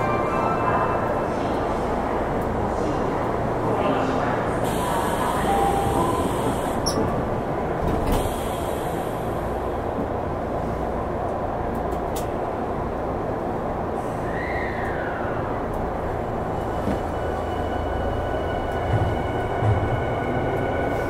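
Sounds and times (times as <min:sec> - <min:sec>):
subway car rumble and hiss: 0:00.0 - 0:21.0.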